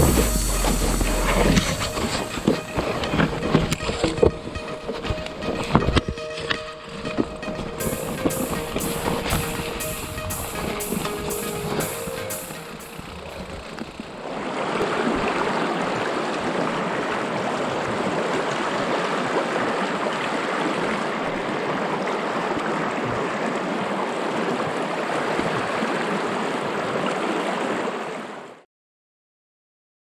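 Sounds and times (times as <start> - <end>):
river rushing over boulders: 14.1 - 28.4.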